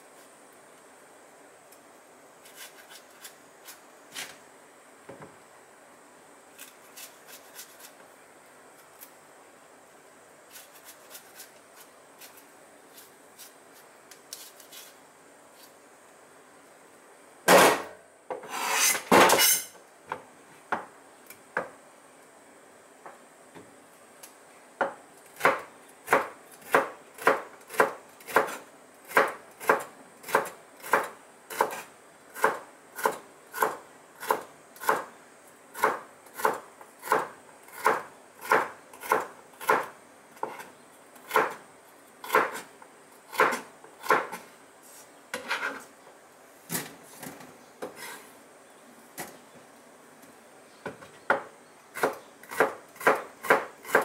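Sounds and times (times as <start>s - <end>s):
knife chopping on cutting board: 51.3s - 54.0s.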